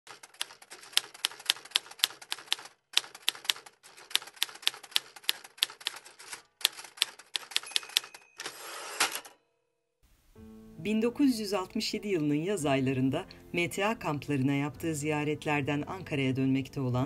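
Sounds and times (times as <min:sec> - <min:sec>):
typewriter keys clacking: 0:00.1 - 0:09.3.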